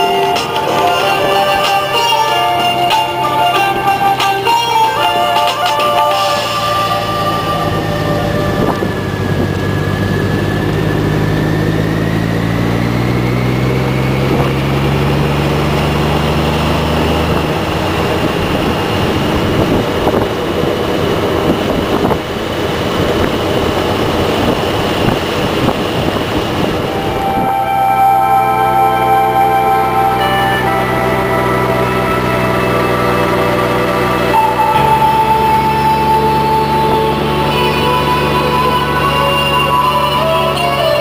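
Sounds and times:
motorcycle engine running at speed: 0:00.0 - 0:41.0
wind rushing: 0:06.3 - 0:12.2, 0:16.6 - 0:29.0.

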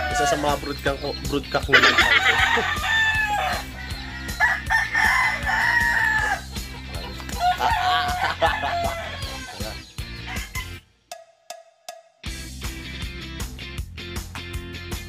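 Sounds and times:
rooster crowing: 0:00.0 - 0:00.6, 0:01.8 - 0:06.5, 0:07.3 - 0:10.8
background music: 0:00.0 - 0:15.0.

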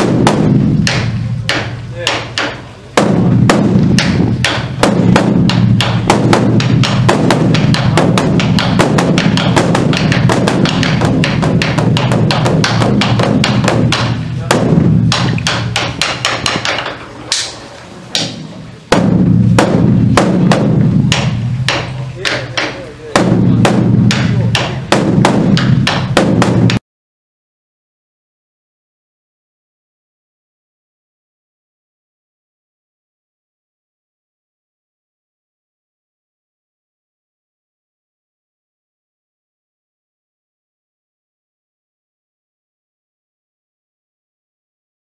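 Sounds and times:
large barrel drum beaten rapidly: 0:00.0 - 0:17.0, 0:18.1 - 0:26.8.

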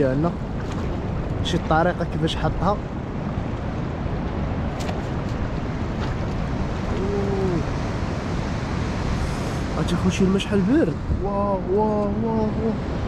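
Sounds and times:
sea surf washing on shore: 0:00.0 - 0:13.0
wind buffeting microphone: 0:00.0 - 0:13.0.

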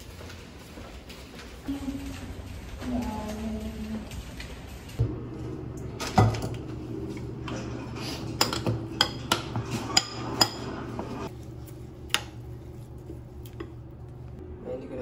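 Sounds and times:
dishes and cutlery clinking: 0:07.5 - 0:11.3.

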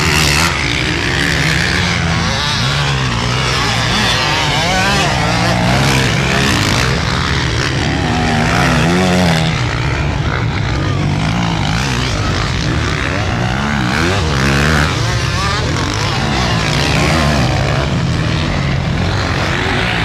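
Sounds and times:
motorcycle engines revving: 0:00.0 - 0:20.0.

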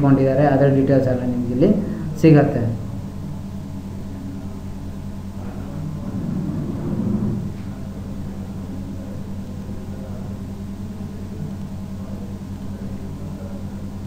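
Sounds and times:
low hum: 0:01.3 - 0:14.0.

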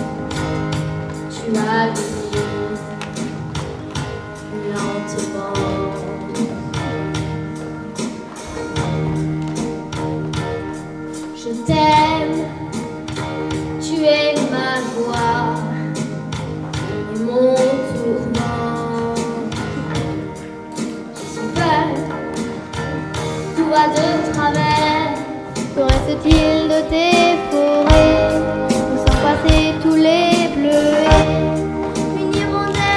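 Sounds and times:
instrumental accompaniment with beat: 0:00.0 - 0:32.9.

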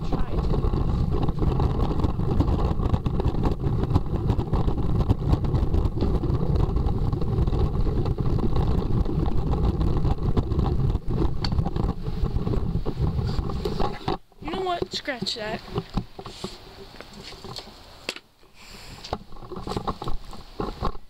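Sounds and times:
wheels knocking on uneven stones: 0:00.0 - 0:18.2, 0:19.0 - 0:21.0
scooter wheels rumbling on paving: 0:00.0 - 0:21.0.

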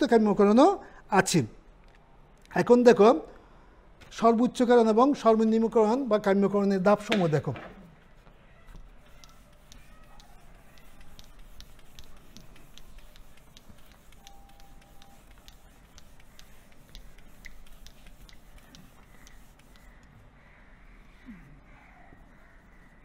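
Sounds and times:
eraser rubbing on whiteboard: 0:07.9 - 0:20.2, 0:22.2 - 0:23.0.

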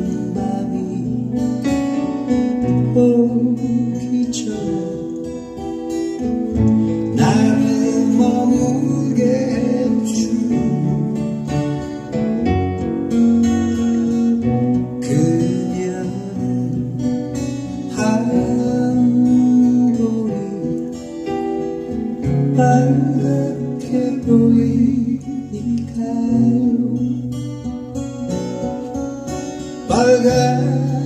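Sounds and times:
man singing: 0:00.0 - 0:01.9, 0:02.5 - 0:05.6, 0:07.1 - 0:11.5, 0:15.0 - 0:21.3, 0:22.3 - 0:27.4, 0:29.8 - 0:31.0
acoustic guitar strumming: 0:00.0 - 0:31.0.

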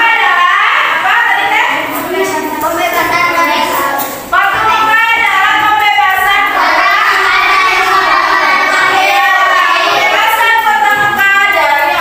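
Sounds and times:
children singing: 0:06.2 - 0:12.0.

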